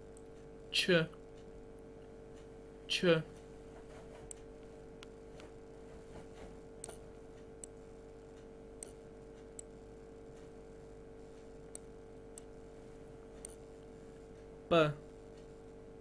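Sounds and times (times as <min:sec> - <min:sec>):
faint steady hum: 0:00.0 - 0:16.0
computer mouse clicking: 0:03.7 - 0:09.7, 0:11.7 - 0:12.6, 0:13.3 - 0:13.6.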